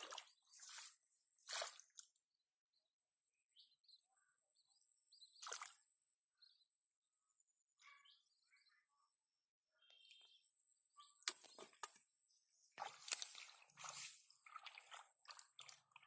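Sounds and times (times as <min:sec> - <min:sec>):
hands squelching in muddy water: 0:00.0 - 0:02.2, 0:12.7 - 0:16.0
faint bird chirps: 0:02.4 - 0:13.5.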